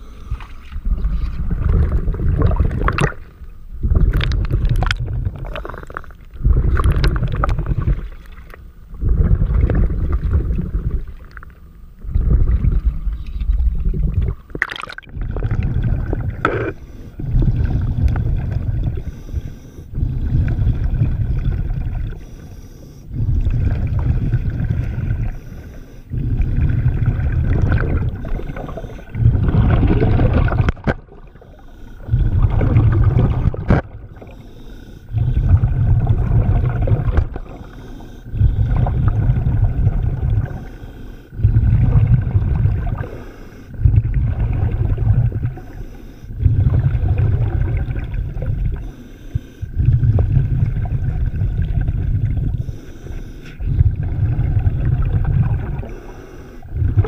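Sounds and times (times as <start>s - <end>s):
diver breathing through regulator: 0.0s - 3.1s, 3.8s - 8.3s, 15.6s - 30.6s, 31.3s - 47.5s, 48.7s - 51.4s, 52.4s - 54.6s, 55.4s - 57.0s.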